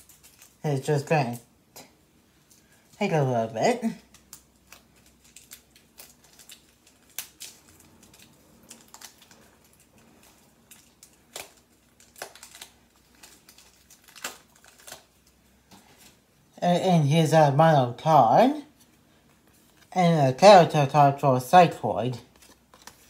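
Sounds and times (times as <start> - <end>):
hands handling toy packaging: 0.0 - 1.4, 3.8 - 16.2, 22.0 - 23.0.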